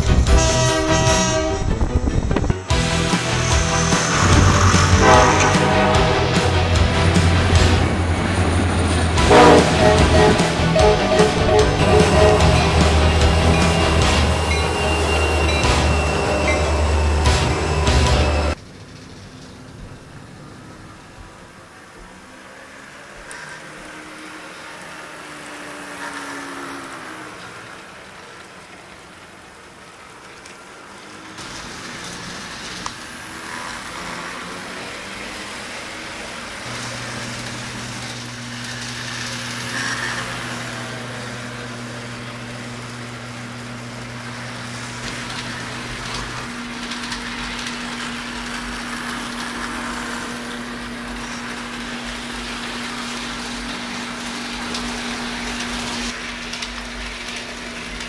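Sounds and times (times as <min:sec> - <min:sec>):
model trains running: 0:00.0 - 0:58.0.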